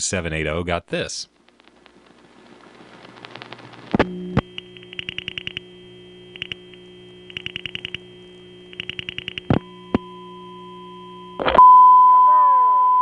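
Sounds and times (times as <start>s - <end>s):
steady telephone line tone: 1.3s - 13.0s
rotary dial pulses clicking: 1.4s - 10.1s.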